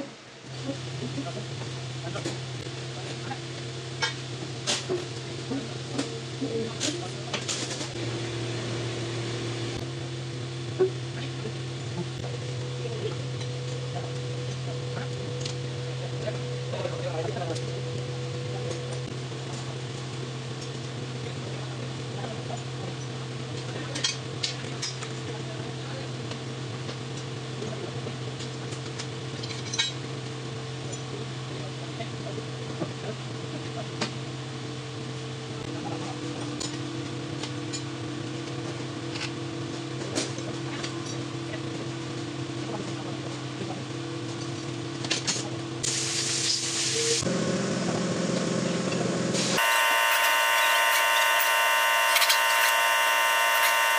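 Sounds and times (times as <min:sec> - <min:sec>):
low machine hum: 0:47.0 - 0:53.9.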